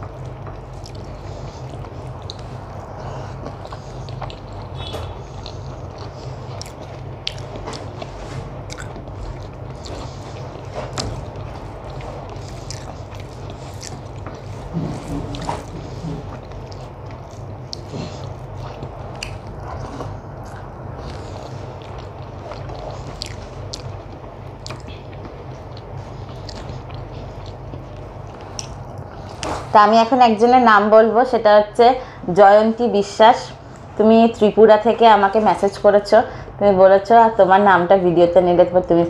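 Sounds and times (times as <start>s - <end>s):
steady low hum: 0.0s - 39.0s
chewing with wet mouth clicks: 0.1s - 29.5s.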